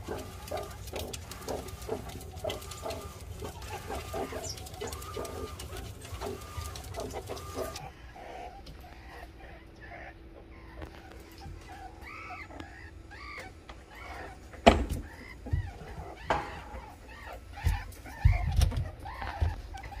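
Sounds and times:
scratching in sawdust: 0:00.0 - 0:07.8
meerkats clucking and chirping: 0:00.0 - 0:20.0
steady low hum: 0:00.0 - 0:20.0.

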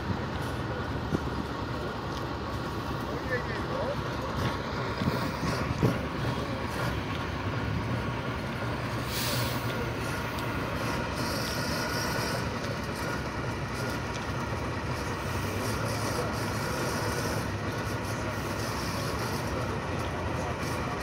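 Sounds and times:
truck engine running: 0:00.0 - 0:21.0
brief hiss: 0:09.0 - 0:09.8.

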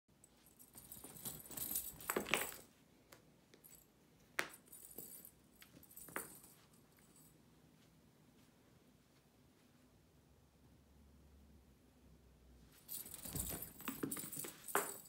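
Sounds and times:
cat toy jingling and rattling: 0:00.3 - 0:02.7, 0:12.8 - 0:15.0.

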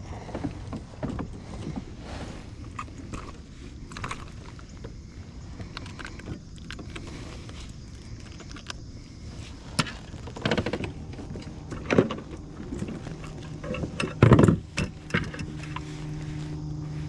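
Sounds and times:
handling clicks rattles and knocks: 0:02.7 - 0:05.0, 0:09.8 - 0:16.8.

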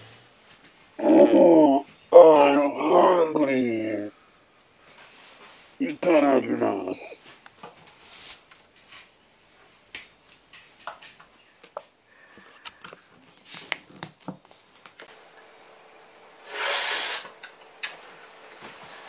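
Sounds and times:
loud slurp of noodles: 0:16.5 - 0:17.3.

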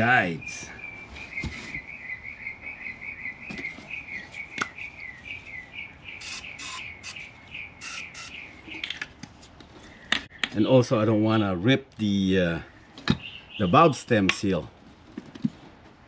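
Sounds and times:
high quick chirps: 0:06.1 - 0:08.6.

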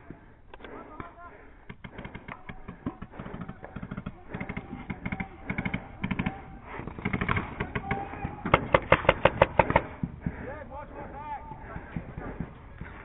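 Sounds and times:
paintball markers firing: 0:00.1 - 0:10.5.

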